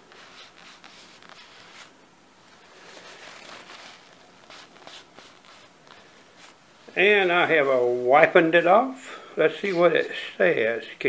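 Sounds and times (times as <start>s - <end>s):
paper tissue rubbing on knife blade: 0.0s - 2.0s, 2.7s - 6.6s.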